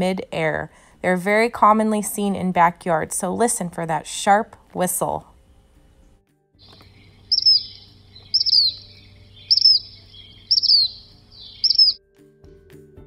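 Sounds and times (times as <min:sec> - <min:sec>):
bird whistled call: 0:06.6 - 0:12.0.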